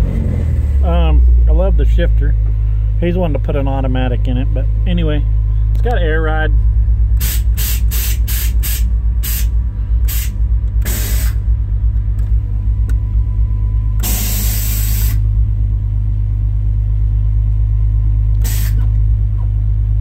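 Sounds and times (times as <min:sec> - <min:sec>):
truck engine idling: 0:00.0 - 0:20.0
air valves hissing: 0:07.2 - 0:11.5, 0:14.0 - 0:15.3, 0:18.4 - 0:18.9.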